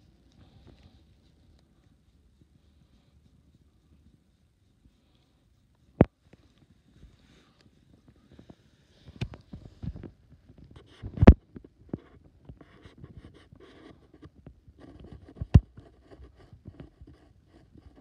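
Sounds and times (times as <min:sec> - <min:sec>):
hand stroking fur: 0:00.0 - 0:11.2.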